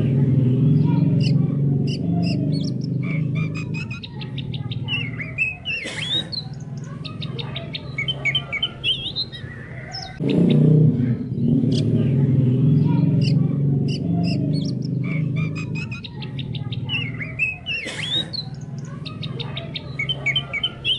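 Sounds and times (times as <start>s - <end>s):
songbird chirping and twittering: 0.0s - 20.9s
low droning chorus: 10.2s - 17.4s.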